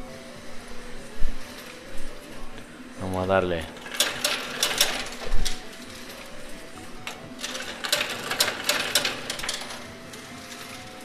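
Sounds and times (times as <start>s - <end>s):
coins clattering onto metal tray: 7.0s - 10.9s.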